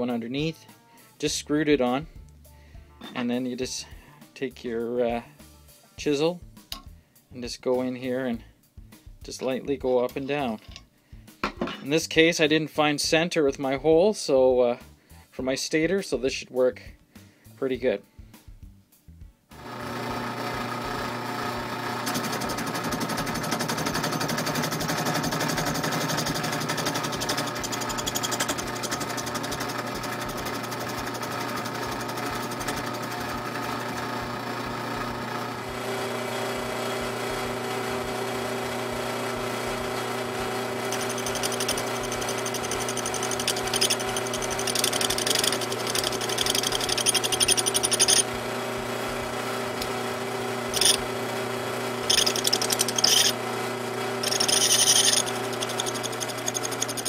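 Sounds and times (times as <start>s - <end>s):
drill press motor humming: 19.6s - 57.0s
chisel scraping rubber: 26.7s - 29.6s, 40.9s - 48.2s, 50.8s - 51.0s, 52.1s - 53.4s, 54.2s - 57.0s.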